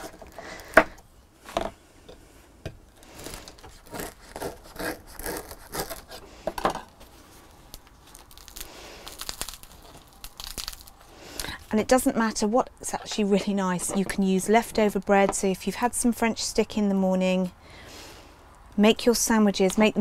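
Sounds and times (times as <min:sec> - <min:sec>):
knife sawing through bread: 0:03.1 - 0:06.3.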